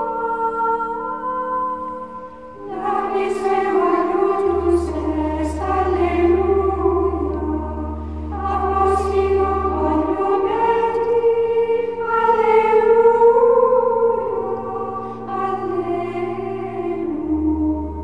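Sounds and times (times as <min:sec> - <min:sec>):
choir singing slow chords: 0:00.0 - 0:18.0
low sustained bass note: 0:03.8 - 0:18.0.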